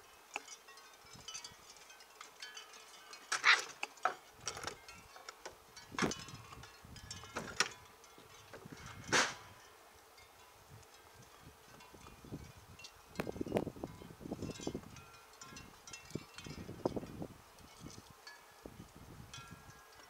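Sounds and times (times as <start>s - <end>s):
metallic clinks and rattles: 0.3s - 9.7s.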